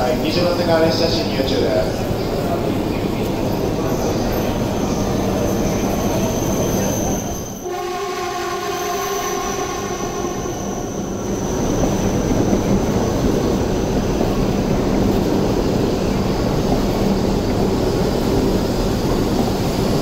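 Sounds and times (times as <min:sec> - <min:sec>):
train rolling past: 0:00.0 - 0:20.0
multi-tone pitched whine: 0:04.1 - 0:13.6.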